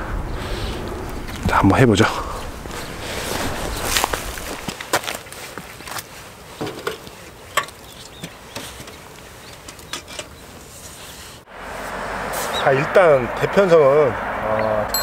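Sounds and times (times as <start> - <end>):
footsteps on rocks and reeds: 2.6 - 9.5.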